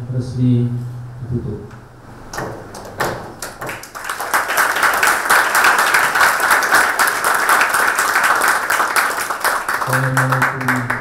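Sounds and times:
audience applause: 0:03.4 - 0:11.0.

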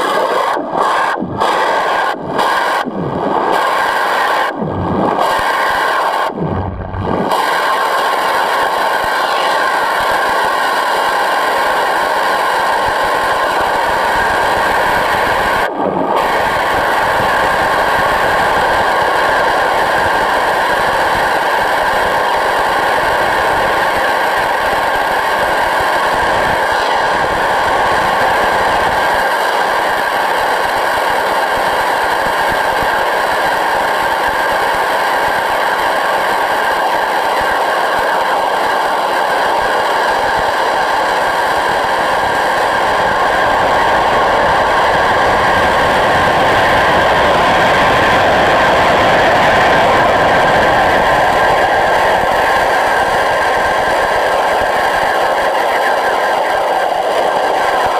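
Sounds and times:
pressure washer jet underwater: 0:00.0 - 0:22.2
steady whine: 0:00.0 - 0:57.9.

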